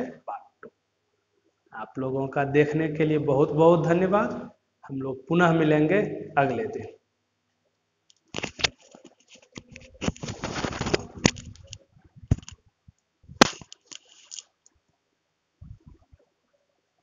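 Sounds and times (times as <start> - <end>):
rustling noise: 8.3 - 14.5.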